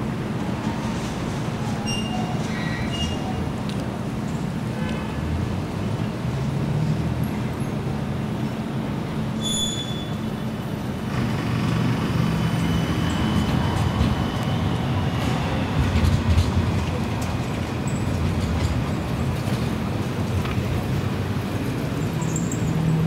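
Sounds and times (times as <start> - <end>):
tram rumbling: 0.0 - 23.0
wheel squeal on rails: 1.5 - 3.5, 9.4 - 10.5, 11.4 - 16.2.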